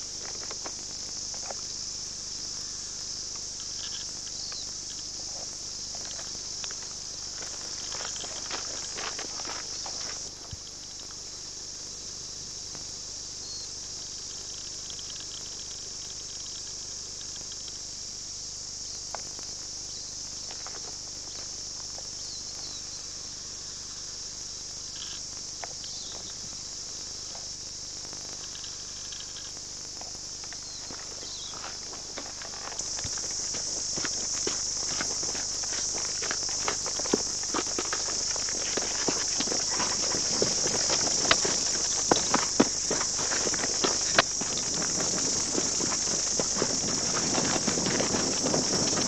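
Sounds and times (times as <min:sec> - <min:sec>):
insect chorus buzzing: 0:00.0 - 0:49.0.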